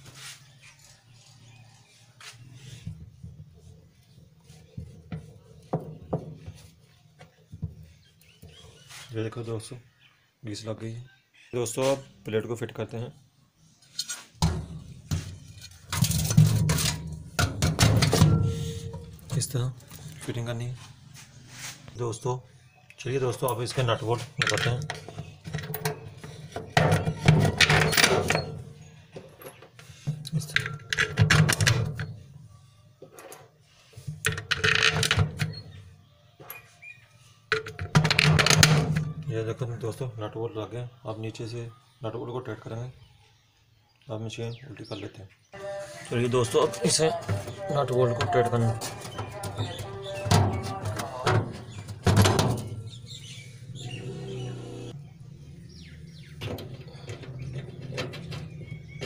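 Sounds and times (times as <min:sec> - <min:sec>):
bird chirping: 0:00.2 - 0:17.2, 0:18.0 - 0:30.9, 0:35.2 - 0:38.0, 0:38.7 - 0:59.0
nuts and bolts clinking on metal: 0:13.8 - 0:20.5, 0:23.3 - 0:32.3, 0:33.0 - 0:35.8, 0:36.4 - 0:39.3, 0:46.5 - 0:55.0, 0:55.7 - 0:59.0
short scrape: 0:21.2 - 0:21.9.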